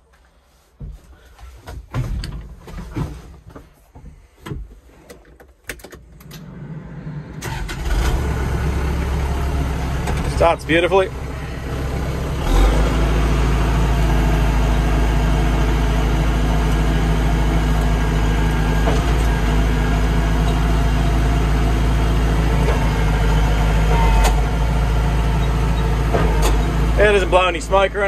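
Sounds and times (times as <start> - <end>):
tractor diesel engine running: 6.0 - 28.0.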